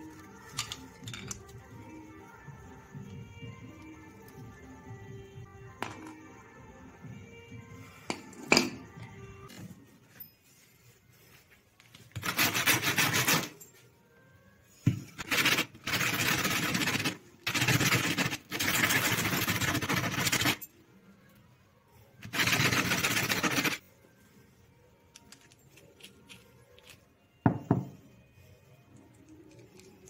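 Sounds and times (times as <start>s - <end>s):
sanding on sandpaper: 12.2s - 13.5s.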